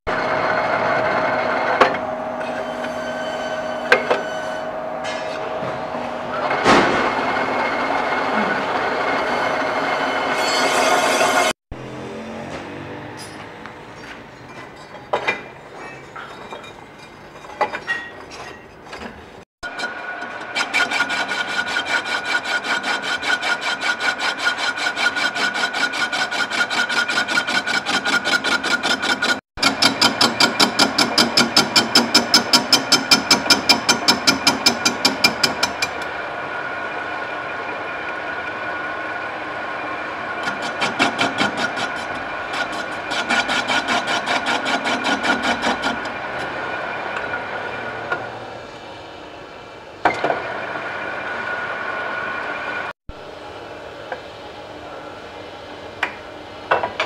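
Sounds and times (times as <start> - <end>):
lathe tool scraping metal: 0.1 - 11.6, 19.6 - 36.1, 40.0 - 48.0.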